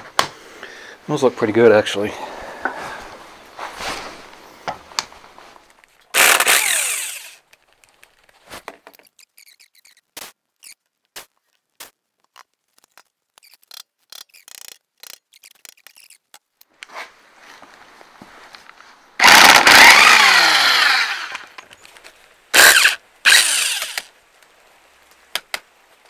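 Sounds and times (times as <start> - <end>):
cordless drill spinning: 6.1 - 7.5, 19.2 - 21.6, 22.6 - 24.1.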